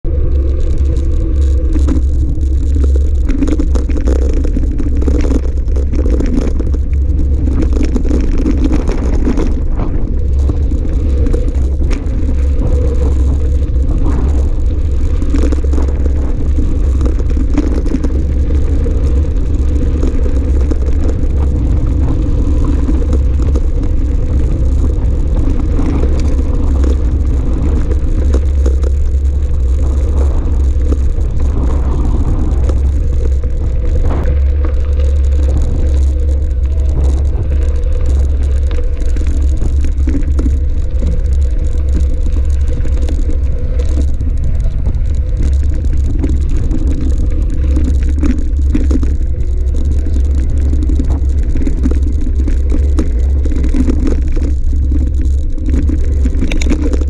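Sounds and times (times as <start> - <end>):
wind buffeting microphone: 0.0 - 57.0
bike rattling over stones: 0.1 - 57.0.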